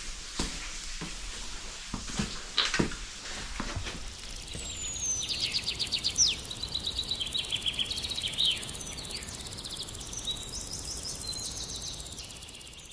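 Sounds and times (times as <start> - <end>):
low outdoor background noise: 0.0 - 12.9
songbirds trilling: 4.0 - 12.9.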